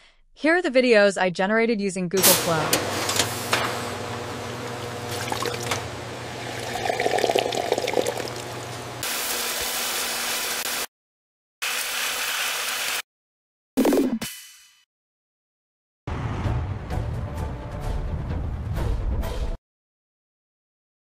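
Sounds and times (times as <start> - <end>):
machine hum: 2.6 - 9.0
liquid pouring into glass bottles: 5.1 - 5.8, 6.4 - 8.6.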